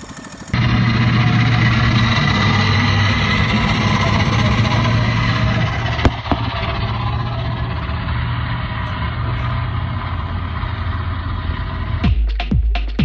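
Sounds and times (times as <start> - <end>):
car engine humming: 0.0 - 12.1.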